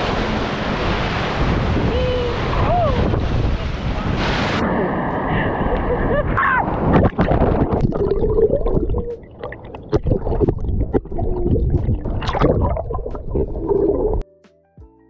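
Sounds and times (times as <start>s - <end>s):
pool water sloshing: 6.7s - 14.2s.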